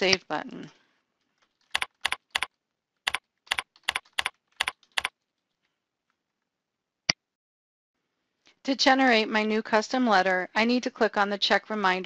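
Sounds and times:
keyboard typing: 1.4s - 5.2s.

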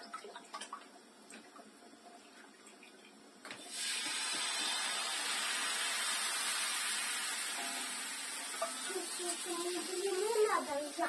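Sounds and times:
batter sizzling on a hot pan: 3.6s - 11.0s.

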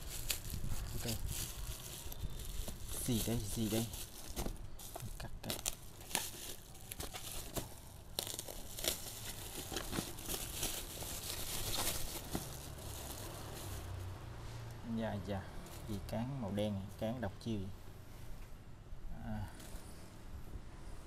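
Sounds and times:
bubble wrap crackles: 0.0s - 14.1s
bubble wrap crinkling and tearing: 0.0s - 14.1s.

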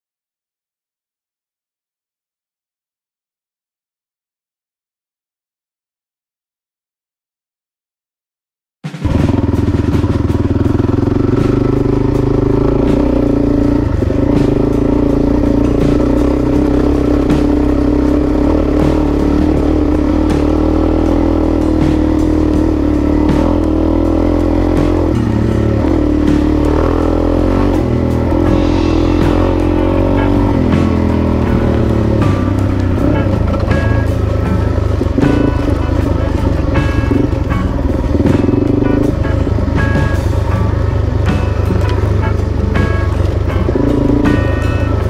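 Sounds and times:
background music: 8.8s - 45.0s
motorcycle engine running: 9.0s - 45.0s.

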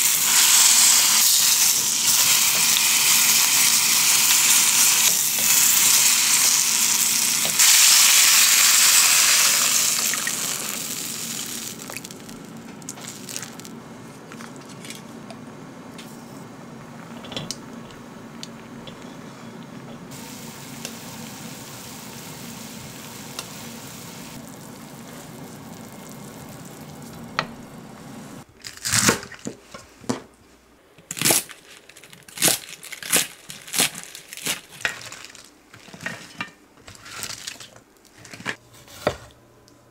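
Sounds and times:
onions sizzling in oil: 0.0s - 13.7s, 20.1s - 28.4s.

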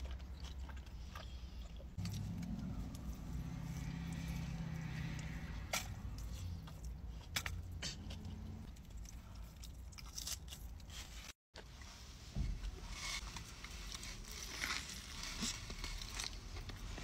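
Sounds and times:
wet chewing: 0.0s - 11.1s.

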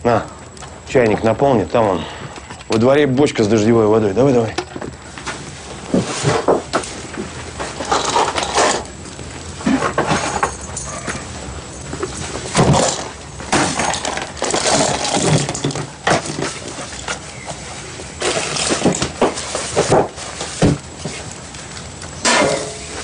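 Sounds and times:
items clattering on wooden table: 6.0s - 8.9s, 9.6s - 11.3s, 11.9s - 17.6s, 18.2s - 21.2s.

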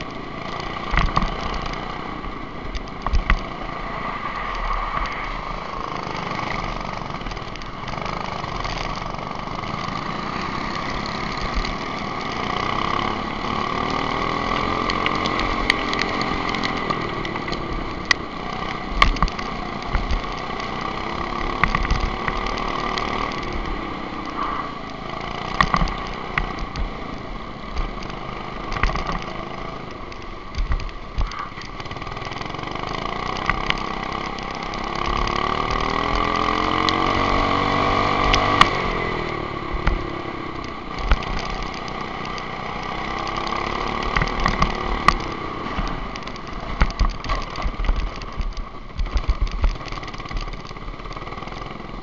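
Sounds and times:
wind rumble: 0.0s - 12.0s
go-kart engine accelerating: 0.0s - 52.0s.

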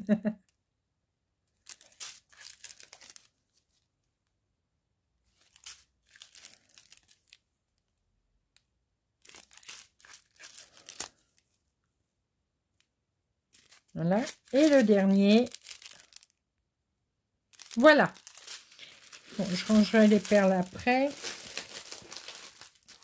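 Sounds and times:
plastic bags crinkling: 1.6s - 3.8s, 5.3s - 7.4s, 9.2s - 11.5s, 13.5s - 16.4s, 17.5s - 23.0s.

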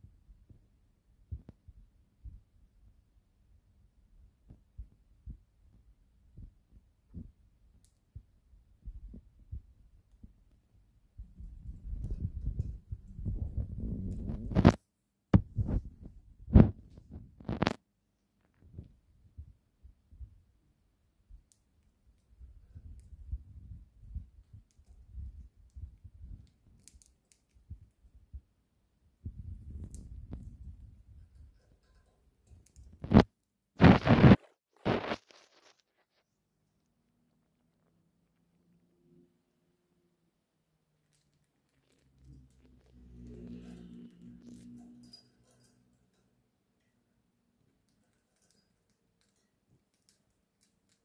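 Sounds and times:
bird cracking seeds: 33.9s - 36.2s.

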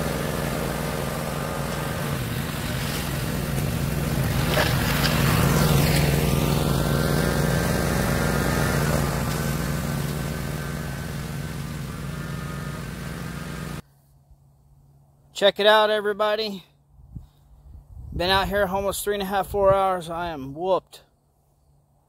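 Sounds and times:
engine running: 0.0s - 13.8s.

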